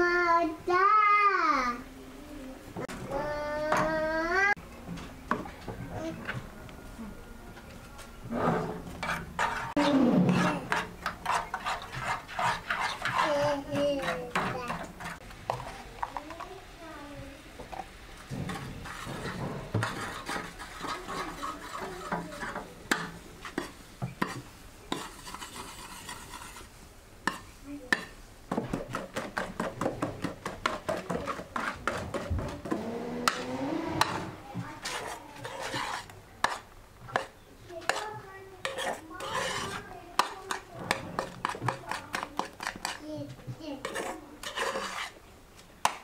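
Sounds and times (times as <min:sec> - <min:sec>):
spoon and whisk scraping pan: 0:08.2 - 0:16.6, 0:17.6 - 0:45.2, 0:45.8 - 0:46.0.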